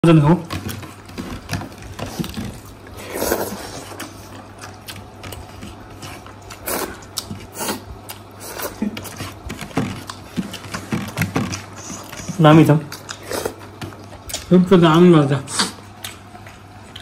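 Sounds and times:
chewing with wet mouth clicks: 3.7 - 9.3, 12.9 - 14.5, 15.6 - 17.0.

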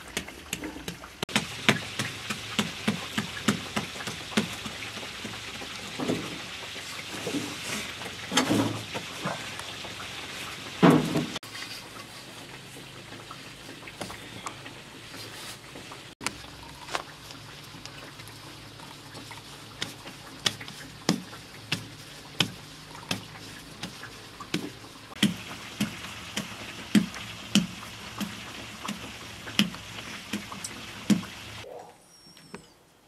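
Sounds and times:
dough slapping on cloth: 0.2 - 5.7, 19.6 - 31.6.

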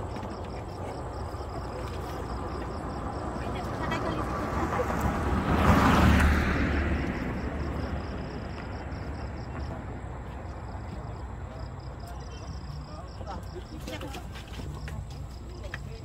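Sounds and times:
car passing by: 1.7 - 10.8.

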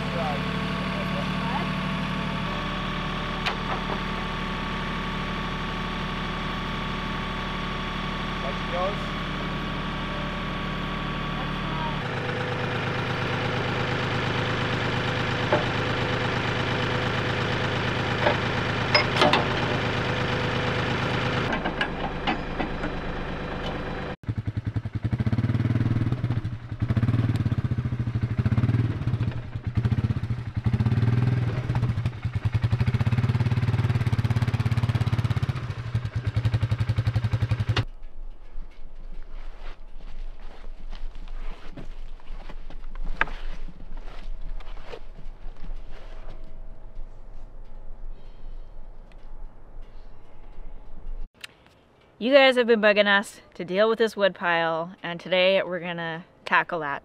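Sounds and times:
quad bike engine revving: 0.0 - 37.9
tractor engine idling: 0.0 - 41.0.

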